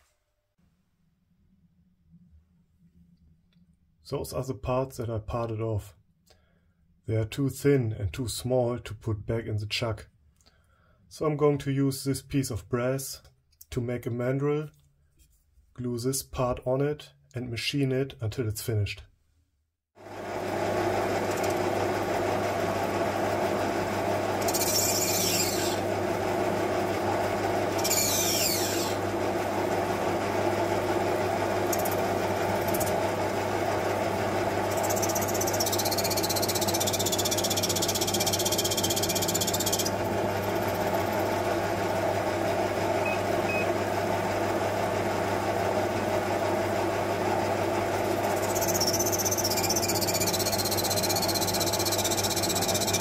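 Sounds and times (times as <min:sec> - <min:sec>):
lathe motor humming: 0:20.1 - 0:53.0
high hissy squealing of cutting: 0:24.4 - 0:25.8, 0:27.8 - 0:29.0.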